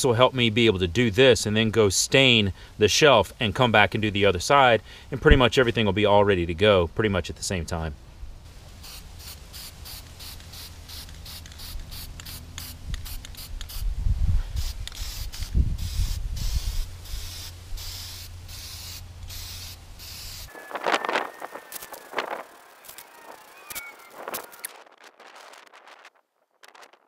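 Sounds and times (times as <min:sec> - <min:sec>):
spray paint can hissing: 0:08.8 - 0:24.6.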